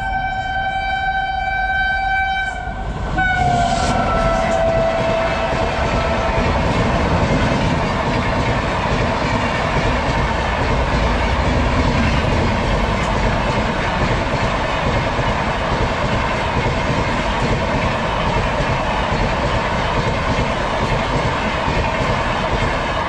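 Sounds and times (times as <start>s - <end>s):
train wheels on rails: 0.0s - 23.0s
train coach rattling: 3.2s - 23.0s.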